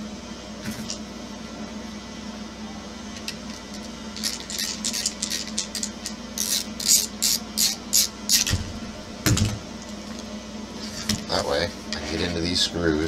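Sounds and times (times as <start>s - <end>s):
screwdriver squeaking on screw: 4.2s - 8.5s.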